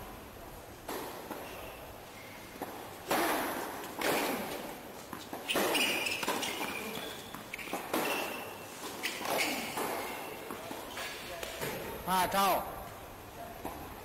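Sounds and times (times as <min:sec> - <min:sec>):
tennis racket hitting ball: 0:02.6 - 0:10.6.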